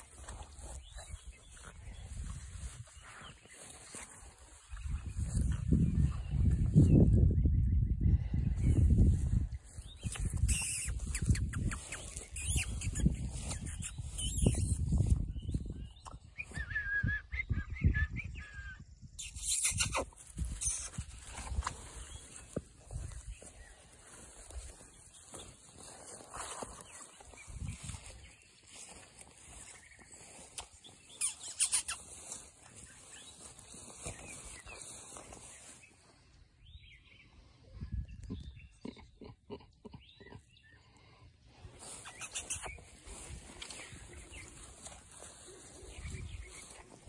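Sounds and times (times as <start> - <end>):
puppies squeaking and whining: 10.0 - 14.9, 19.2 - 21.0, 31.1 - 32.3, 41.9 - 43.9
puppies yipping: 31.2 - 32.2, 41.8 - 47.0.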